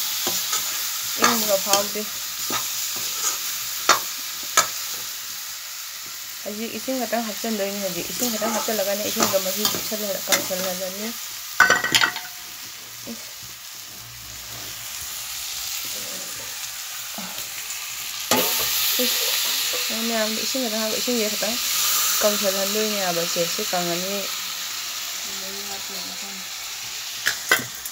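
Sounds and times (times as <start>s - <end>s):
vegetables sizzling in a wok: 0.0s - 27.9s
metal ladle scraping pan: 8.2s - 10.8s.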